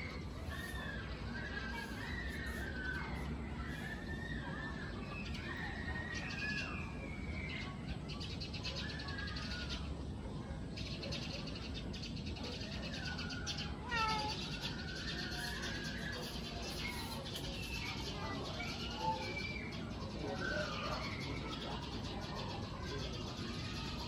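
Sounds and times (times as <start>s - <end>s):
cat meowing: 13.9s - 14.3s.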